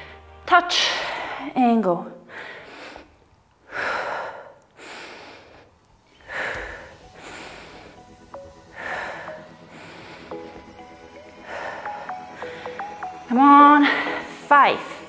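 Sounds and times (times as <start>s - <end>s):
faint background music: 0.0s - 3.0s, 6.1s - 15.0s
woman breathing hard: 2.2s - 14.4s.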